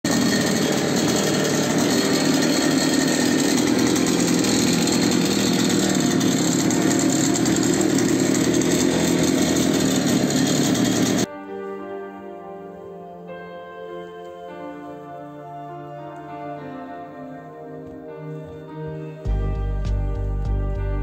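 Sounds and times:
small two-stroke engine running: 0.0s - 11.3s.

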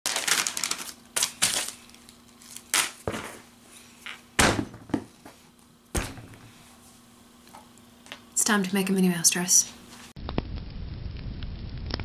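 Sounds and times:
paper rustling: 0.1s - 4.0s.

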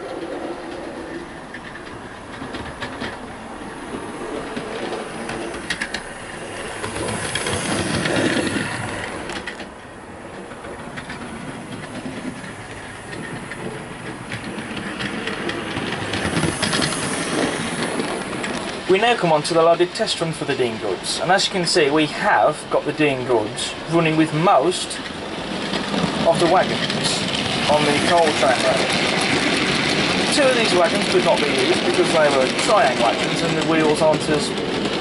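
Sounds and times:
wheels clicking over rail joints: 0.0s - 35.0s.

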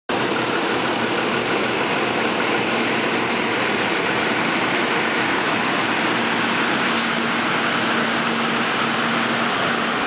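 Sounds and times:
vehicle running noise: 0.1s - 10.0s.

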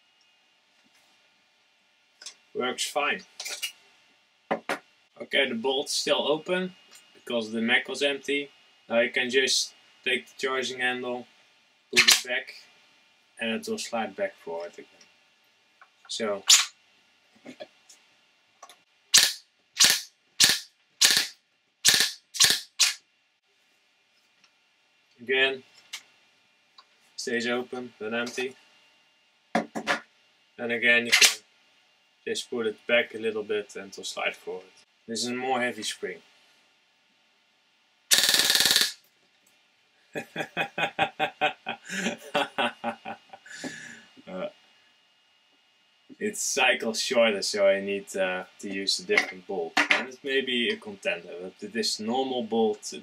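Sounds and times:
airsoft gun shots: 19.2s - 21.3s, 21.9s - 23.0s
man laughing: 40.2s - 44.0s.

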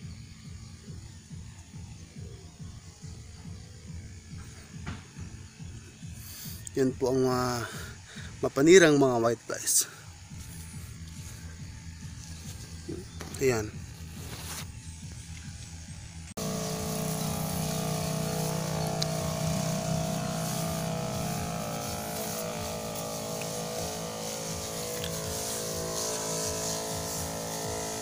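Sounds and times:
spray wand hissing: 5.4s - 8.7s, 9.7s - 15.4s, 16.4s - 28.0s
electric pump humming: 9.7s - 28.0s.

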